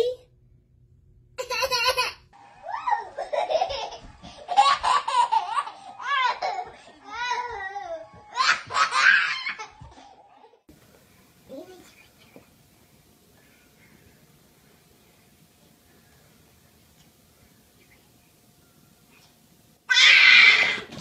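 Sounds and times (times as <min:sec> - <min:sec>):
baby laughing: 0:01.4 - 0:02.2, 0:02.8 - 0:07.6.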